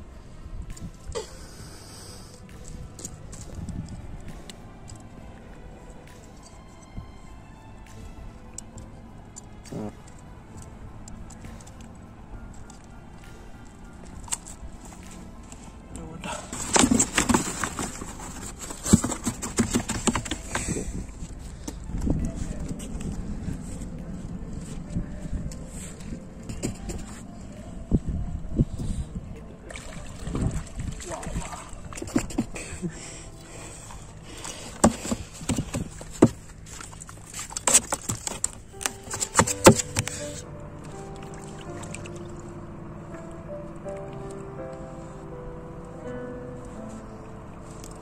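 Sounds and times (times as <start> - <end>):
fish knocking and slapping: 16.4 - 21.2, 29.7 - 32.6, 34.4 - 40.2
fish thudding in styrofoam box: 16.5 - 20.8.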